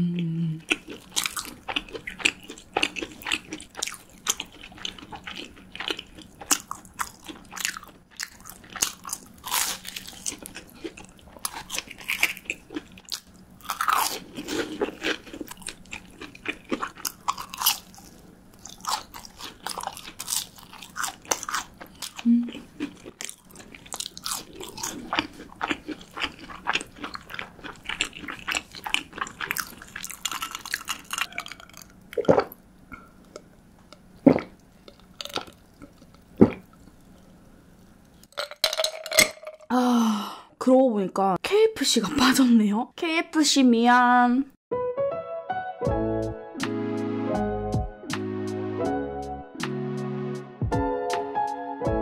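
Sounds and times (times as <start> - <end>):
crisp crunching of fried food: 0.7 - 32.6, 34.4 - 39.2.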